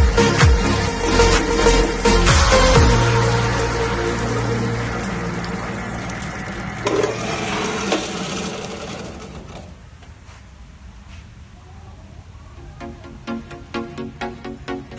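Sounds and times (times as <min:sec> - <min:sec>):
water spraying: 0:00.8 - 0:09.0
blender motor humming: 0:02.9 - 0:09.6.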